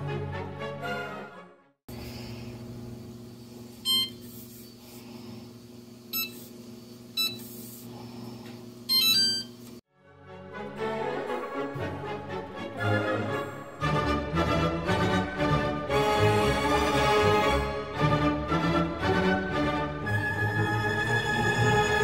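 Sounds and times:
oven control panel beeps: 3.9 - 4.2, 6.2 - 6.4, 7.2 - 7.5, 8.9 - 9.6.

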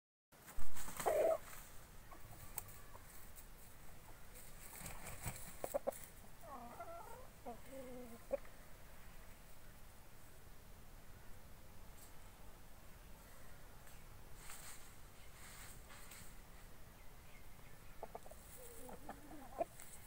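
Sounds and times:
chickens clucking: 0.8 - 9.3, 17.3 - 20.0.

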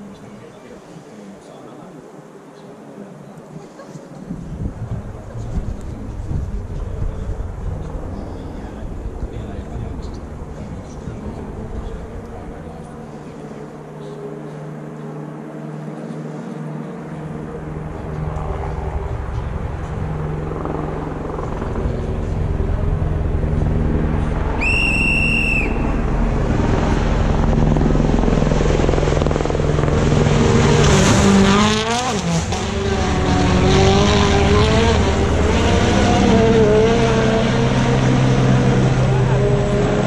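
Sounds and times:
rally car passing at full throttle: 4.2 - 40.0
short high whistle: 24.6 - 25.9.

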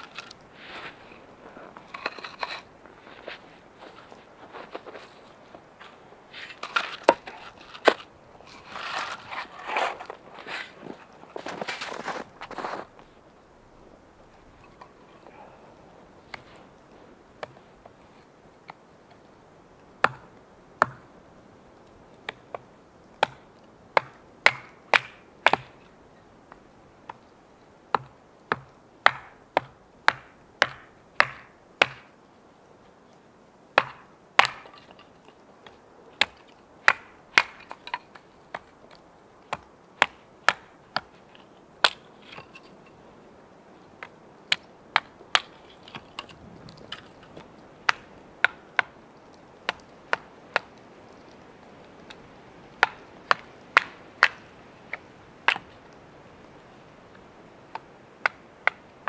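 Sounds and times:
axe splitting kindling: 6.4 - 12.9, 36.2 - 38.7.

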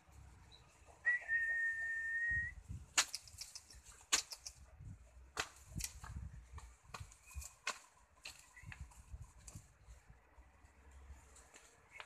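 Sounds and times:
high whistle: 1.1 - 2.6
sharp clicks: 3.0 - 4.6.

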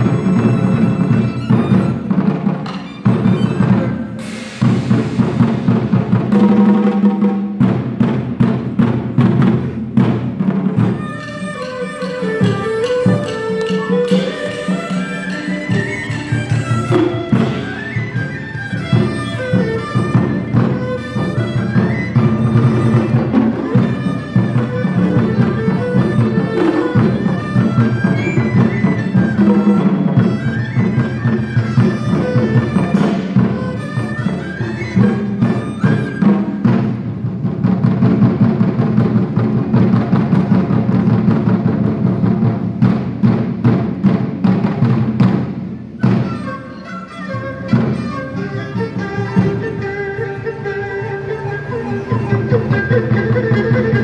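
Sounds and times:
barrel drums: 0.0 - 54.0
plucked lutes: 9.2 - 37.1
bowed string melody: 10.9 - 35.8, 46.4 - 54.0.

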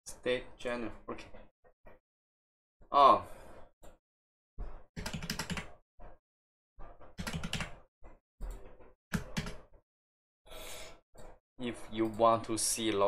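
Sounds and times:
computer keyboard typing: 5.0 - 5.8, 7.0 - 7.9, 8.5 - 9.7.

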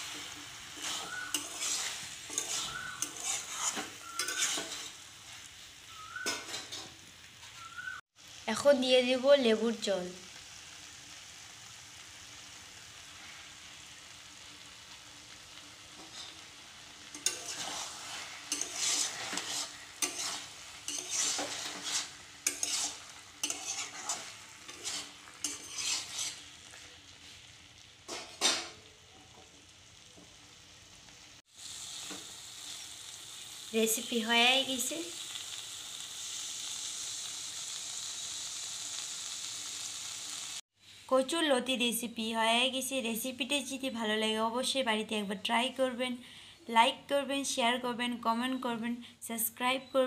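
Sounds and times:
spatula scraping a pan: 0.0 - 5.5, 6.1 - 7.5, 15.9 - 27.5
curry sizzling in a pan: 0.0 - 49.2.

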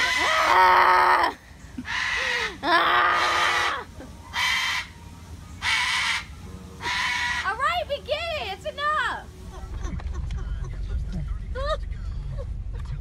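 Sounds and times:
cockatoo screeching: 0.0 - 4.9, 5.6 - 7.6.

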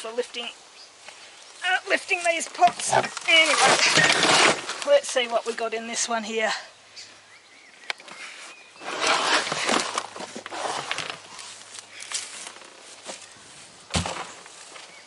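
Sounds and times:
soil rustling: 0.0 - 6.3, 7.9 - 15.0
plastic pot scraping on plastic: 2.6 - 4.9, 8.8 - 11.4.

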